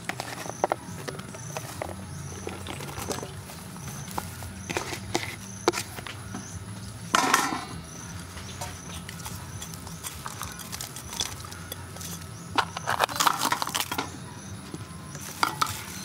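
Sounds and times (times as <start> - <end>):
ingredients rustling and clattering in wok: 7.1 - 14.1.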